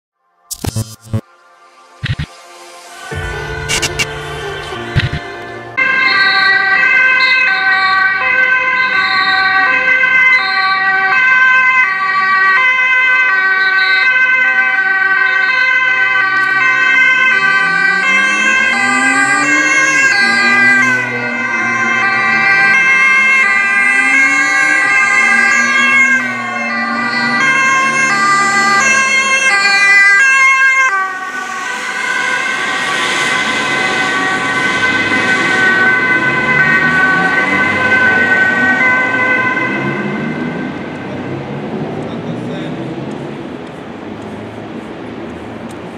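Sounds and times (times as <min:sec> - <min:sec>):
engine note rising: 0:00.5 - 0:09.8, 0:15.9 - 0:45.6
traffic moving: 0:00.5 - 0:45.9
two-tone emergency sirens: 0:00.8 - 0:45.9
vehicle rushing past: 0:15.9 - 0:45.9.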